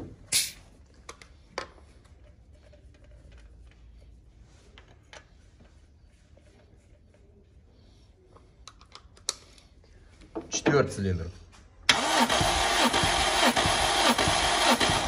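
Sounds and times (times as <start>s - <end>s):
short hiss: 0.3s - 0.6s.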